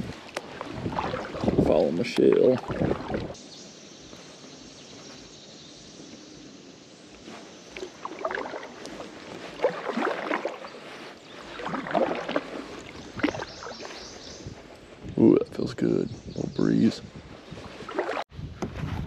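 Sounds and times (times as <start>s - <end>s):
kayak paddle splashing in water: 0.2s - 3.4s, 7.6s - 14.4s, 17.8s - 18.3s.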